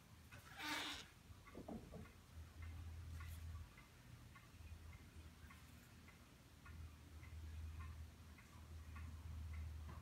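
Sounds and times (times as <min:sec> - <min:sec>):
faint even ticking: 0:01.0 - 0:10.0.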